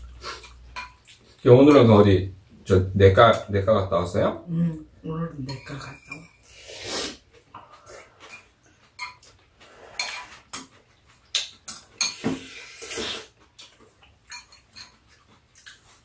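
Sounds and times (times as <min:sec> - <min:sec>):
metal chopsticks clinking on bowls: 0:05.5 - 0:06.4
noodles being slurped: 0:12.1 - 0:13.4.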